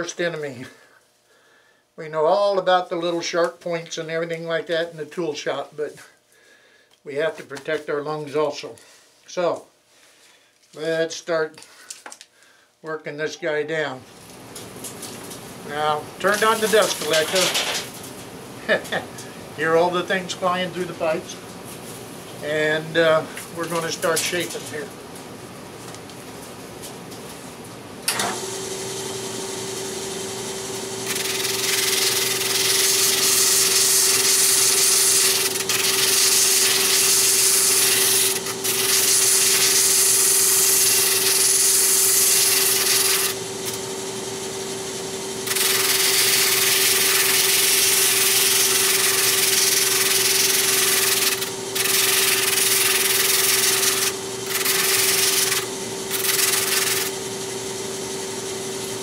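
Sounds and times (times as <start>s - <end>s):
drum sander motor humming: 14.7s - 21.7s, 28.1s - 59.0s
wood hissing against sanding drum: 16.2s - 17.9s, 31.0s - 43.4s, 45.4s - 57.2s.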